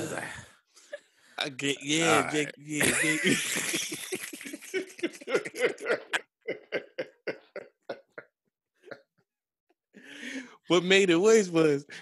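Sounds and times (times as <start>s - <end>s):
people laughing hard: 2.8s - 9.2s.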